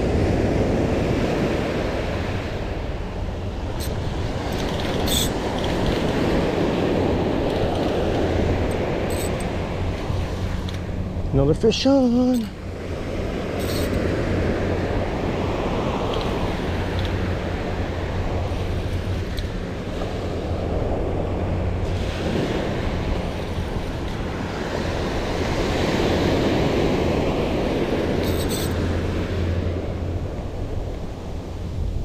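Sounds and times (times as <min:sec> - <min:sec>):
ocean surf breaking: 0:00.0 - 0:32.0
wind buffeting microphone: 0:00.0 - 0:32.0.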